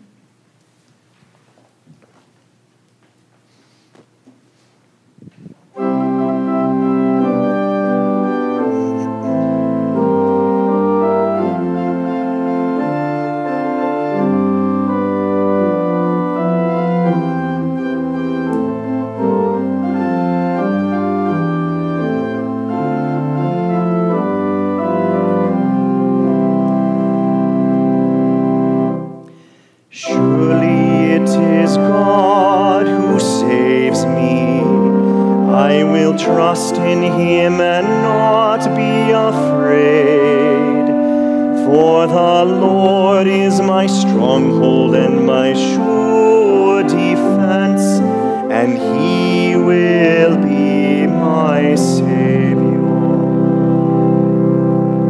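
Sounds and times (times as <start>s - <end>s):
organ playing sustained chords: 5.4s - 55.0s
music with wavering vibrato tone: 5.8s - 29.3s.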